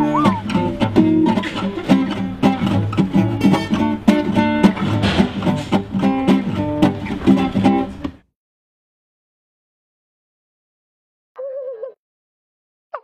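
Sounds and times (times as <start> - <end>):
guitar strumming and plucking: 0.0 - 8.2.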